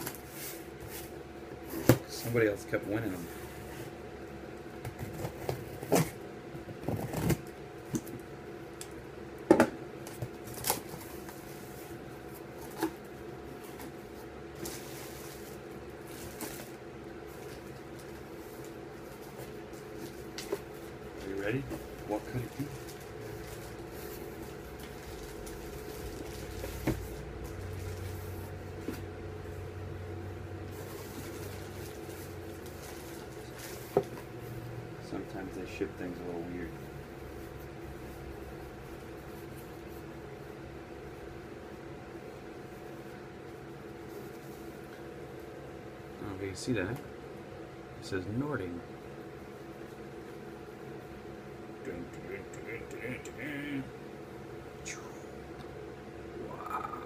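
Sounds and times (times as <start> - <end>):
faint steady hum: 0.0 - 57.0
packaging rustling and crinkling: 14.6 - 28.4, 30.7 - 34.2.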